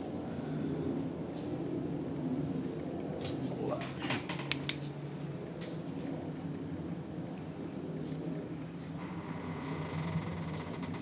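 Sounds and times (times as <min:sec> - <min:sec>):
low background hum: 0:00.0 - 0:11.0
sharp click: 0:04.5 - 0:04.8.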